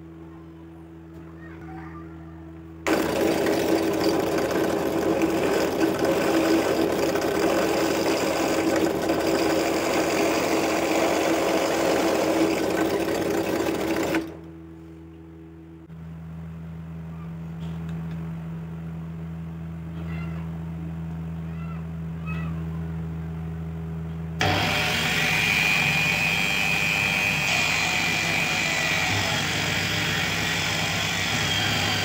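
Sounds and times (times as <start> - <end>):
drill press hum: 2.8 - 14.6, 24.4 - 32.0
drill bit cutting wood: 2.9 - 14.3, 24.4 - 32.0.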